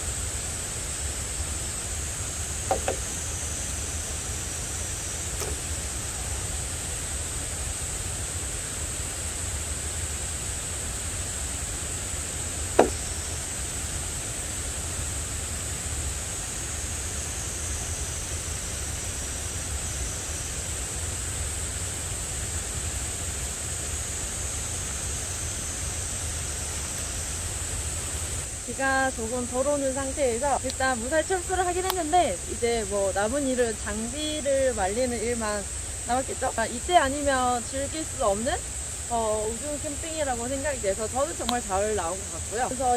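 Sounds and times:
forest ambience hiss: 0.0s - 42.9s
high insect drone: 0.0s - 42.9s
sharp knock: 2.7s - 3.2s, 5.4s - 5.6s, 12.8s - 13.2s.

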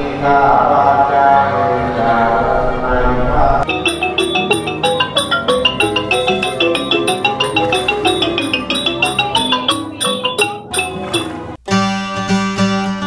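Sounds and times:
wooden xylophone fast runs: 3.7s - 11.4s
steady percussion beats: 3.7s - 11.5s.

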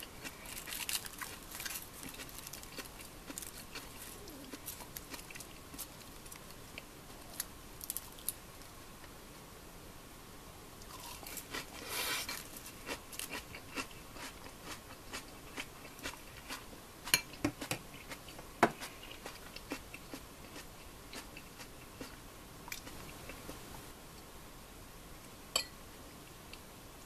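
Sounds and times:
chewing: 0.2s - 7.5s, 10.8s - 16.6s, 17.9s - 23.3s
rustling scrape: 11.7s - 12.7s.

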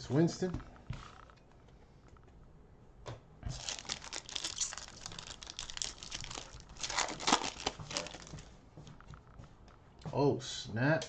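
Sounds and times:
cellophane wrapper tearing and crinkling: 3.5s - 8.4s.

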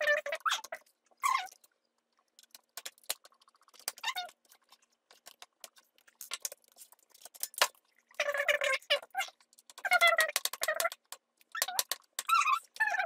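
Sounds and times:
screwdriver clicks and squeaks: 9.7s - 13.0s.

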